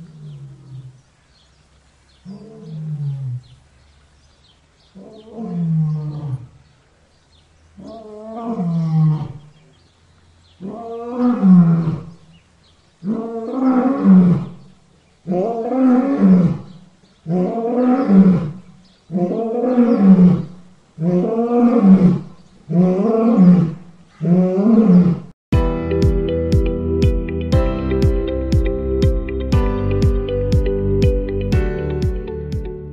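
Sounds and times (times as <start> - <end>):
lion roaring: 2.2 - 3.5, 7.8 - 9.6, 10.6 - 12.2, 15.2 - 25.3.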